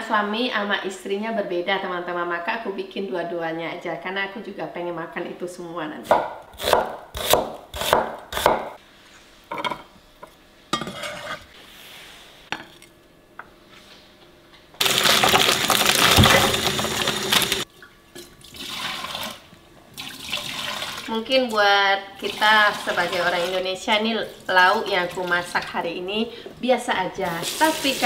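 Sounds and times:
knife chopping on wooden board: 6.1 - 8.8.

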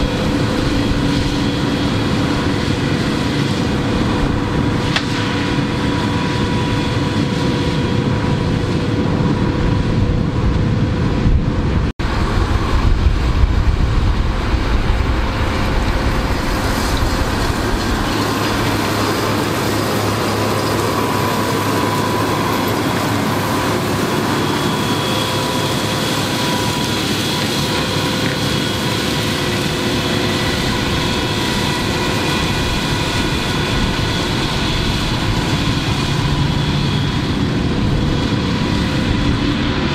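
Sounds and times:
tractor diesel engine under load: 12.0 - 39.0.

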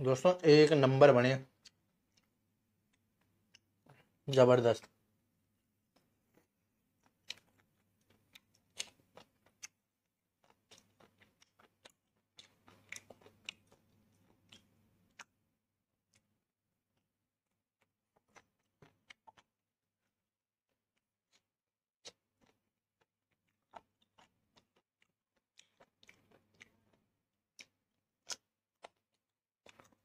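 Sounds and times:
person biting and chewing: 7.0 - 9.8, 10.4 - 15.3, 25.4 - 27.0, 27.6 - 30.0.

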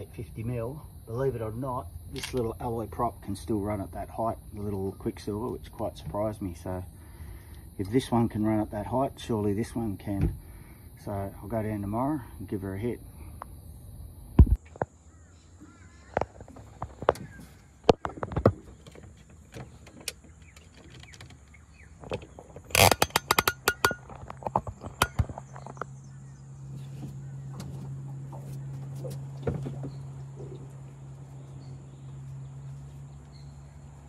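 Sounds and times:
phone being handled in metal boat: 16.2 - 26.0.

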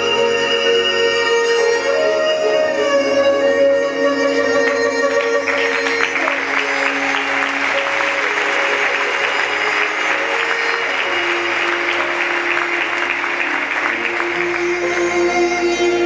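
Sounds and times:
music with long held notes: 0.0 - 16.0
audience applauding and cheering: 4.6 - 16.0.

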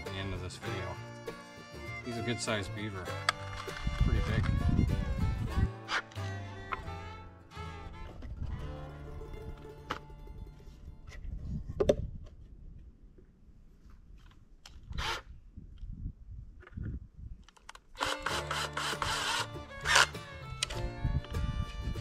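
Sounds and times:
cordless drill into wood: 14.9 - 15.3, 18.0 - 20.1.

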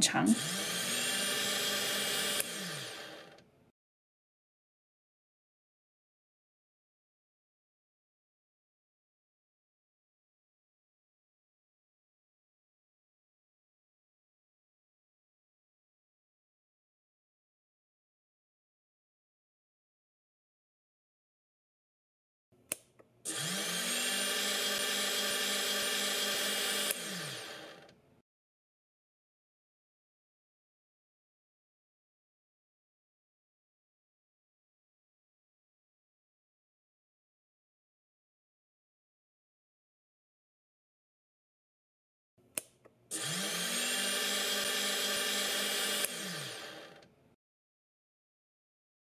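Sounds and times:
small motor spinning: 0.3 - 3.4, 23.3 - 27.9, 43.1 - 47.1
sharp click: 22.7 - 23.1, 42.5 - 43.0.

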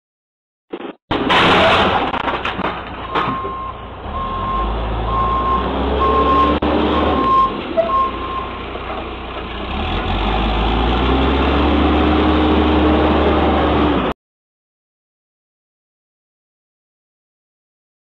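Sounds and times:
diesel engine running: 2.1 - 14.1
backup alarm beeping: 3.2 - 8.5.

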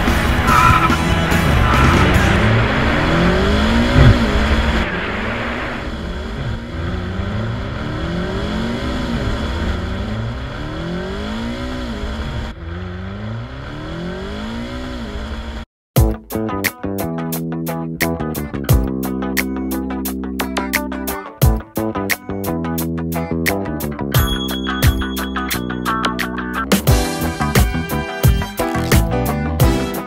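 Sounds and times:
engine note rising and falling: 0.0 - 15.6
guitar music: 16.0 - 30.0.

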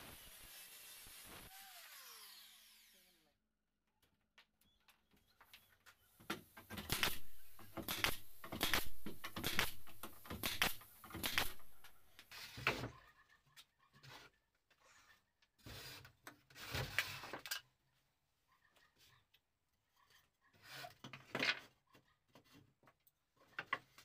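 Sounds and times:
nail gun firing into wood: 6.7 - 12.0.

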